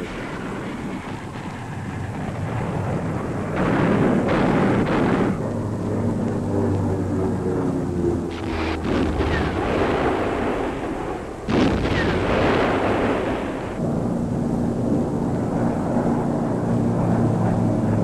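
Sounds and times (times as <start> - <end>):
wind: 0.0 - 18.0
sustained low tones: 4.3 - 17.7.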